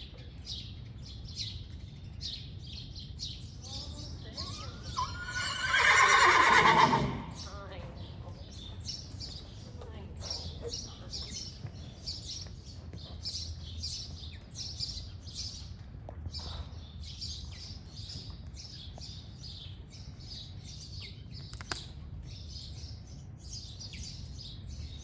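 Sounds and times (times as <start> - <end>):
horse trotting on sand: 7.3 - 25.0
sharp click: 21.5 - 21.9.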